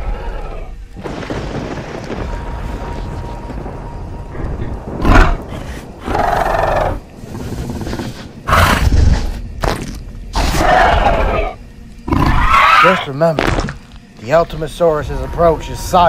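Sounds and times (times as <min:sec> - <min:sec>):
dinosaur roaring and growling: 0:05.0 - 0:09.3.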